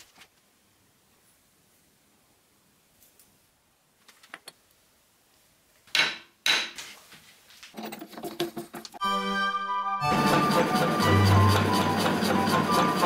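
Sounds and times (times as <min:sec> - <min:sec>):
music with held tone: 0:09.0 - 0:13.0.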